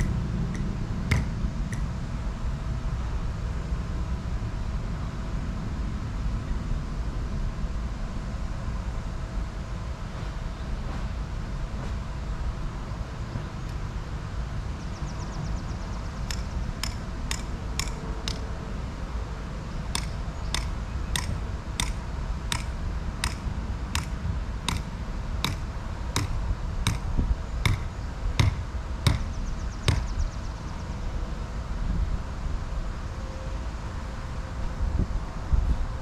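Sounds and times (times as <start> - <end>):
hammer striking ground stake: 0.0 - 1.9, 16.3 - 18.5, 19.9 - 30.2.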